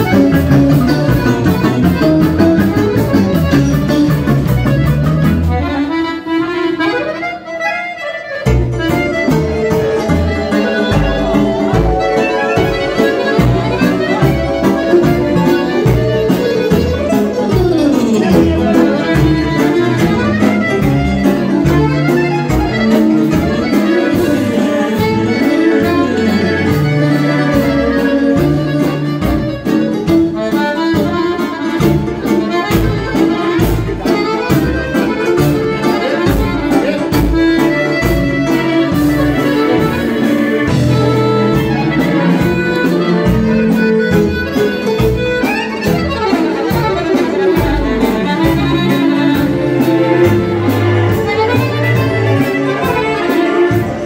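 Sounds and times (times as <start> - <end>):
accordions playing dance tune: 0.0 - 54.0
electric guitar: 0.0 - 54.0
keyboard: 0.0 - 54.0
drum kit fast beat: 8.8 - 29.4.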